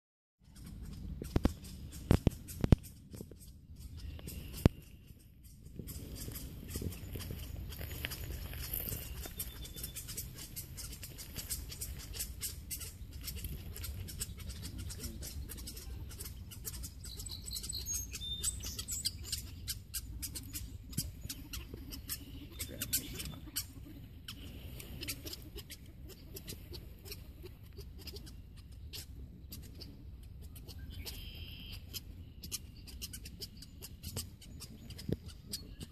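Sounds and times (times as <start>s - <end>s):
birds chirping: 0.4s - 35.9s.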